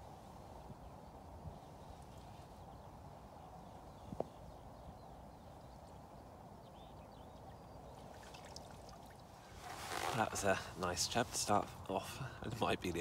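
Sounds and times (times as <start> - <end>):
flowing river water: 7.9 - 10.2.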